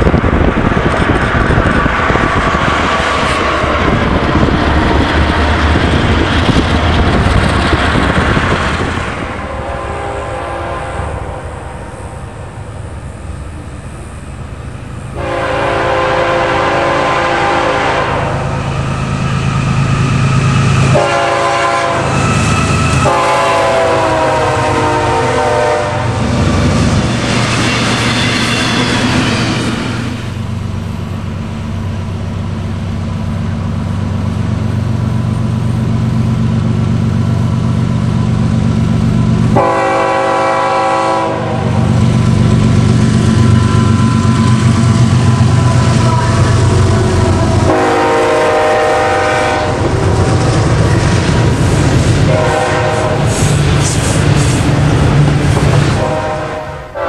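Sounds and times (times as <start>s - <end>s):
diesel engine drone: 0.0s - 27.5s, 29.1s - 57.0s
locomotive air horn blasts: 9.4s - 11.8s, 15.2s - 18.6s, 20.5s - 26.2s, 39.5s - 41.8s, 45.3s - 49.9s, 52.2s - 53.6s, 55.9s - 57.0s.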